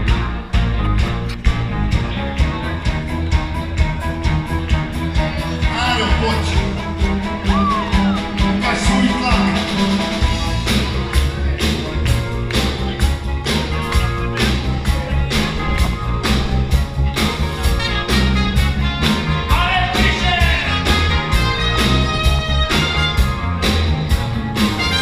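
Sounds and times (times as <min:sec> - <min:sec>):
live rock band playing: 0:00.0 - 0:25.0
person singing: 0:05.4 - 0:06.8.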